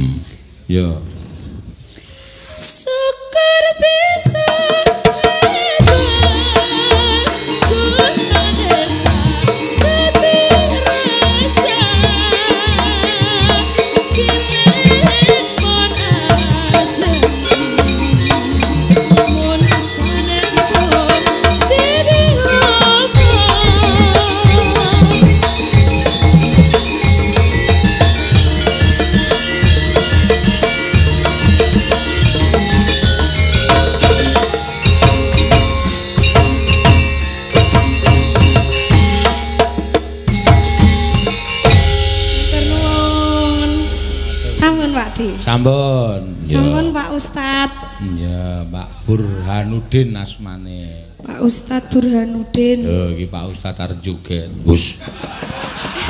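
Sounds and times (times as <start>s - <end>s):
high wavering melody: 5.3s - 39.7s, 40.3s - 50.1s
ringing pitched notes: 5.4s - 53.5s
steady low drum beat: 5.6s - 47.9s
gamelan playing: 5.8s - 49.2s.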